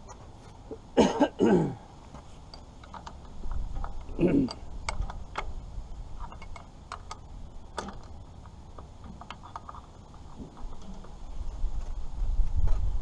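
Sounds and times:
wrench clicking on metal bolts: 2.5s - 5.6s, 6.2s - 10.2s.

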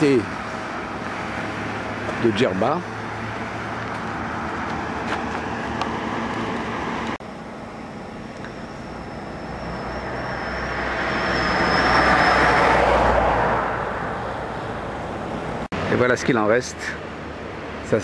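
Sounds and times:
motor vehicle running: 0.0s - 16.2s
thin high whine: 6.8s - 14.8s.

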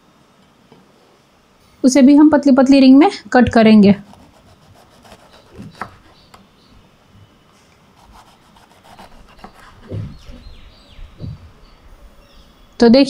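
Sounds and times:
knife slicing pepper on board: 4.0s - 6.2s, 8.0s - 10.4s
heavy knock on cutting board: 9.8s - 10.4s.

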